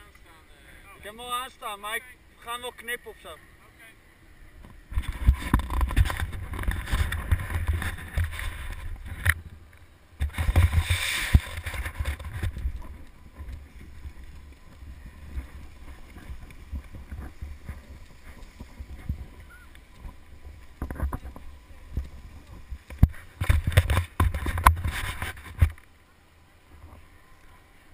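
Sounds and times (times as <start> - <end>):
wind buffeting microphone: 4.5 - 25.7
faint clicks and shuffling: 4.6 - 26.0
skis scraping over packed snow: 4.9 - 9.2, 10.2 - 25.8.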